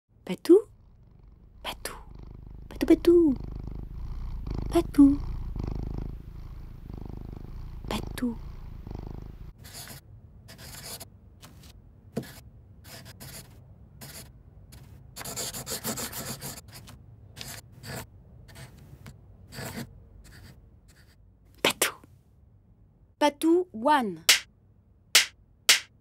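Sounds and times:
marker scratching on paper: 9.6s - 11.0s, 12.2s - 14.3s, 15.2s - 18.8s, 19.5s - 21.2s.

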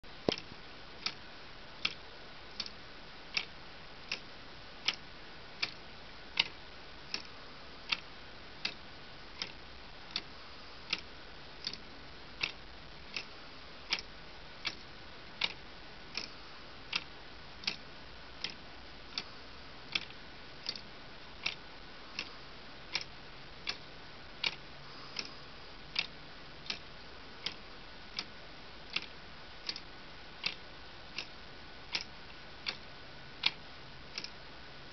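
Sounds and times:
plastic clock escapement ticking: 0.3s - 1.2s, 1.8s - 2.0s, 2.6s - 3.5s, 4.8s - 5.0s, 5.6s - 5.8s, 6.4s - 7.3s, 9.4s - 10.3s, 11.6s - 11.8s, 13.9s - 14.8s, 15.4s - 16.3s, 16.9s - 17.8s, 18.4s - 19.3s, 19.9s - 21.6s, 22.9s - 23.8s, 28.9s - 30.6s, 31.9s - 32.8s, 34.2s - 34.4s.

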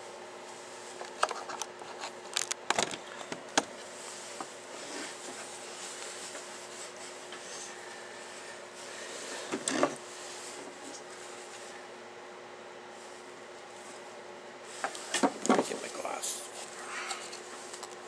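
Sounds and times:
rustling scrape: 3.8s - 11.8s.

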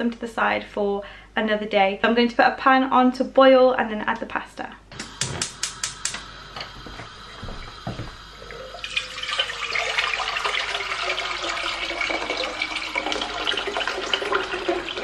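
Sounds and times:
water pouring into saucepan: 6.4s - 15.0s.

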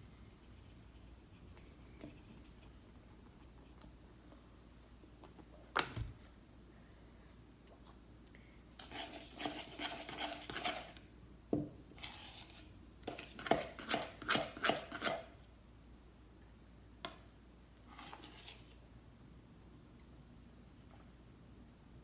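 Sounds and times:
spoon scraping mixing bowl: 8.8s - 11.0s.

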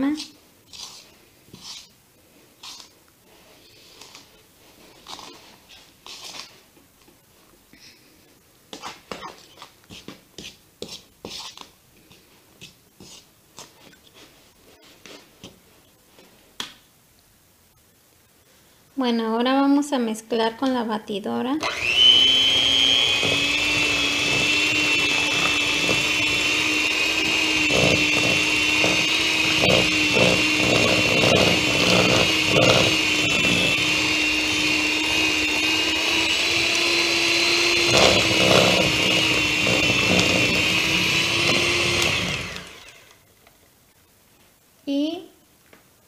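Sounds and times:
electric hand mixer whining: 21.6s - 43.2s.

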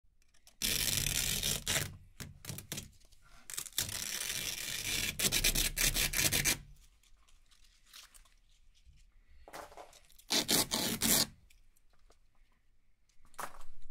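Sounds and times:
velcro strips ripping apart: 0.3s - 2.9s, 3.5s - 8.4s, 10.1s - 11.5s.

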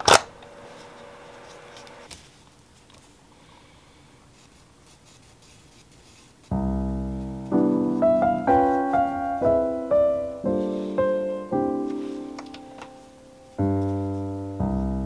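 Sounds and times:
faint room sound: 0.0s - 15.0s
slow piano music: 6.5s - 15.0s.

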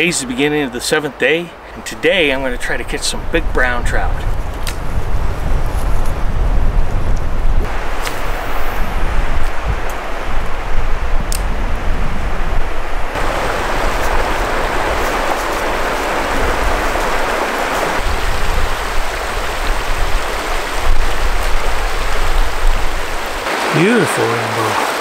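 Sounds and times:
river rushing over rocks: 13.1s - 25.0s.

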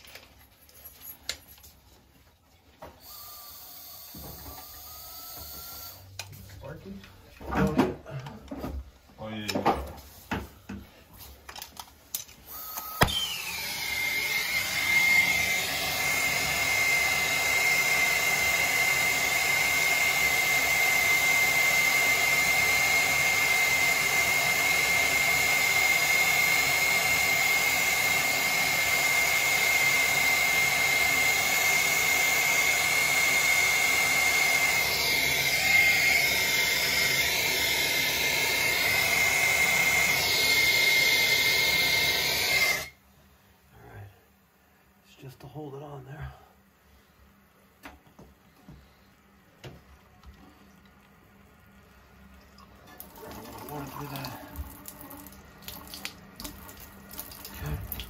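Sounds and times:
torch flame hissing and whistling: 13.0s - 43.0s.

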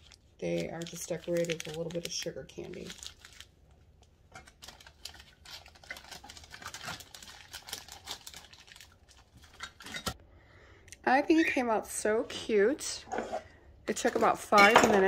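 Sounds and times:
cellophane bags crinkling: 0.0s - 3.6s, 4.4s - 10.2s.

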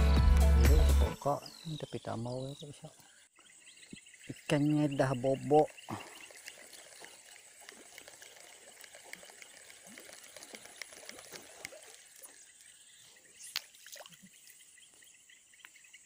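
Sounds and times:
crickets and insects chirring: 1.2s - 16.0s
water trickling: 1.8s - 16.0s
small ticks: 5.8s - 15.9s.

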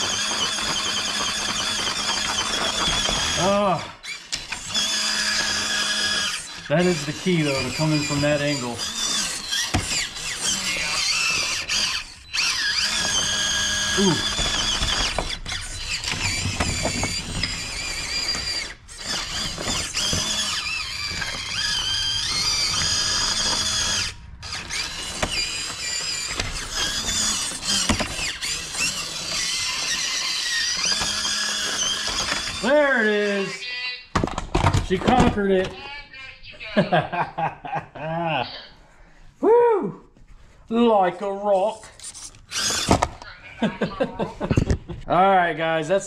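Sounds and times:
toy truck motor whining: 0.0s - 34.1s, 41.6s - 44.8s.

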